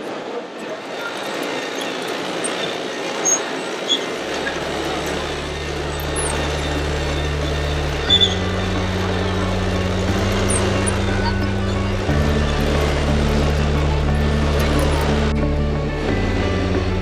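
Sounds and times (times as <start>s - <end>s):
exhibition hall crowd noise: 0.0s - 17.0s
low sustained drone: 4.5s - 17.0s.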